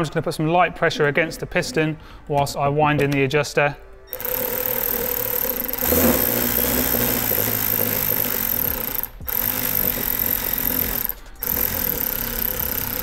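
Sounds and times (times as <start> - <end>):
cordless electric ratchet running: 4.1 - 13.0.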